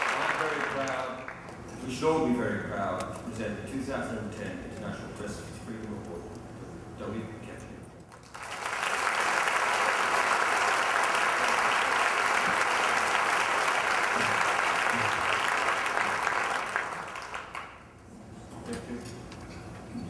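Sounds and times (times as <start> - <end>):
audience applauding: 0.0 - 1.6, 8.1 - 18.0.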